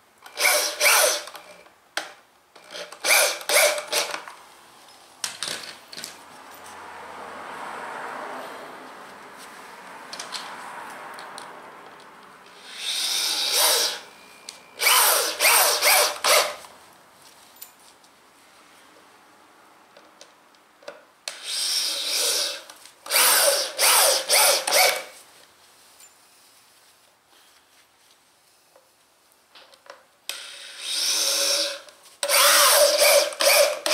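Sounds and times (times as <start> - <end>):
power drill driving screws: 0.3 - 1.6, 2.6 - 4.2, 12.5 - 14.1, 14.8 - 16.6, 21.3 - 25.2, 30.3 - 33.9.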